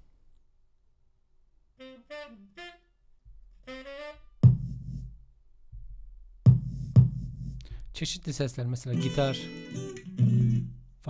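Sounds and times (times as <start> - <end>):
saxophone phrase snippets: 1.8 - 2.9, 3.6 - 4.3
kick drum hits: 4.4 - 5.1, 5.8 - 8.0.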